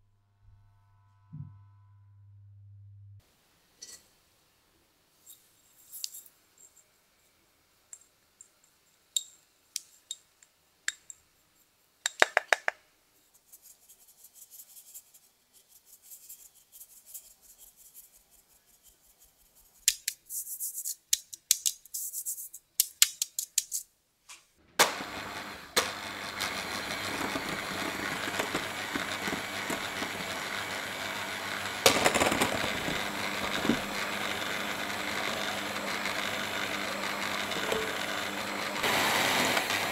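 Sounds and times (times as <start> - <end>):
electric hand mixer whisking: 24.8 - 39.9.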